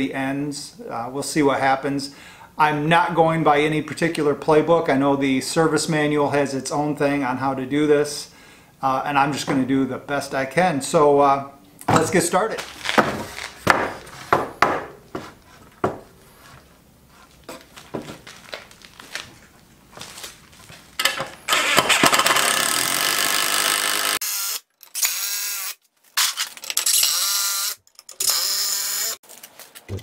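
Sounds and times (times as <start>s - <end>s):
wooden boards knocking: 12.9s - 16.1s
cordless drill whirring: 21.5s - 29.2s.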